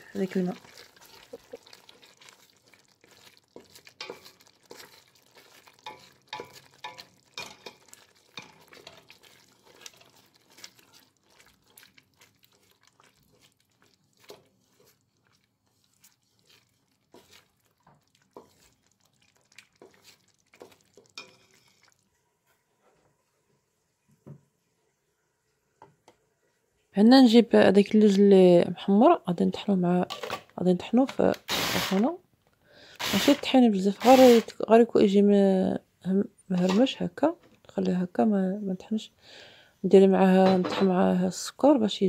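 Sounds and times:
wooden spoon scraping a pot: 0:00.1 - 0:23.0, 0:33.0 - 0:34.5.

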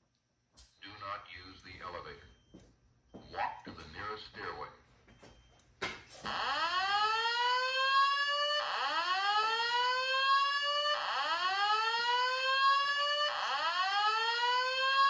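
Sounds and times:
fire alarm whoop tone: 0:06.2 - 0:15.0.

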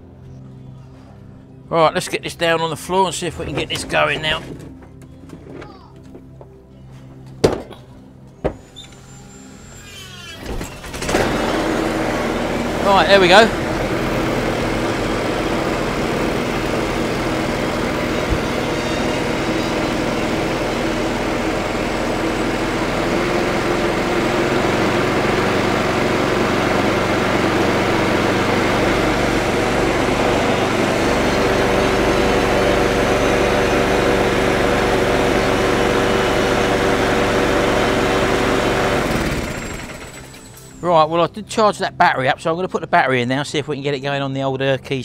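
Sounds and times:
lawnmower engine running: 0:08.5 - 0:40.9.

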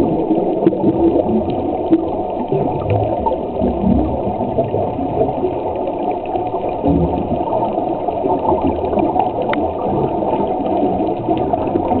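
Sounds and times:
muffled underwater rush: 0:00.0 - 0:12.0
faint clicks: 0:05.8 - 0:12.0.

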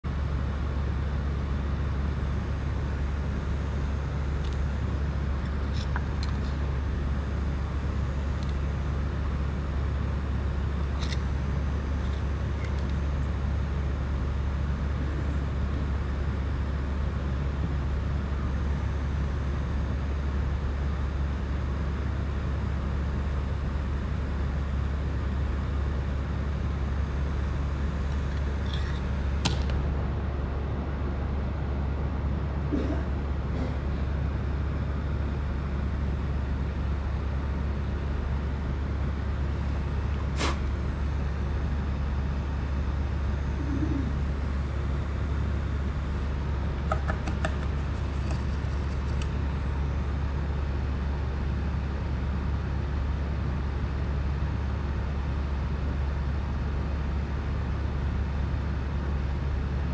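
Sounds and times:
hiss: 0:40.3 - 0:40.7.

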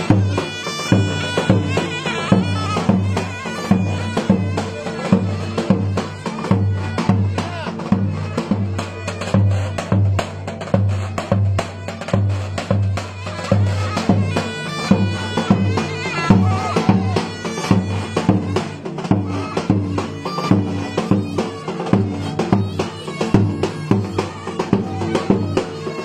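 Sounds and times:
reed wind instrument melody: 0:00.0 - 0:26.0
bass drum beating: 0:14.9 - 0:25.6.

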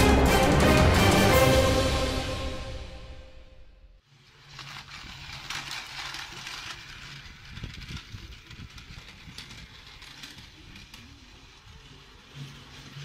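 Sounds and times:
toy train motor whir: 0:04.1 - 0:13.0
clicking wheel clatter: 0:04.5 - 0:13.0.

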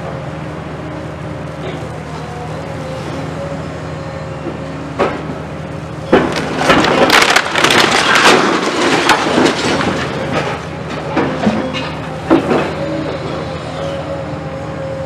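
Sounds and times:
diesel engine droning: 0:00.0 - 0:15.0
wall collapsing into rubble: 0:06.1 - 0:10.6.

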